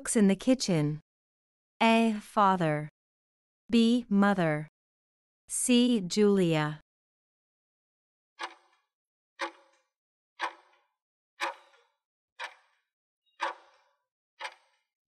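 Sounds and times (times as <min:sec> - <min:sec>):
clock-like ticks with ringing tail: 0:08.4 - 0:08.8, 0:09.4 - 0:09.8, 0:10.4 - 0:10.8, 0:11.4 - 0:12.8, 0:13.4 - 0:14.9.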